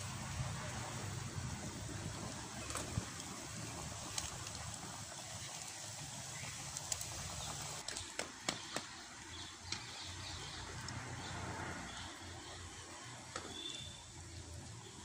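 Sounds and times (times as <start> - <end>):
wood fire hissing and crackling: 0.0 - 15.0
faint bird chirps: 13.4 - 14.1.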